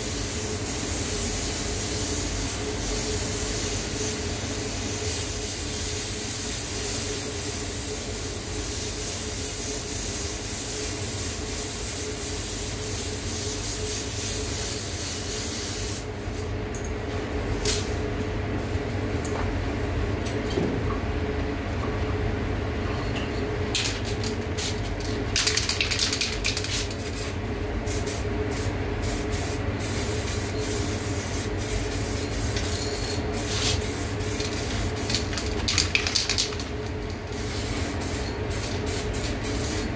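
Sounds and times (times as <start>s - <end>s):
ventilation hum: 0.0s - 39.9s
spray gun hissing: 27.9s - 35.1s, 37.3s - 39.9s.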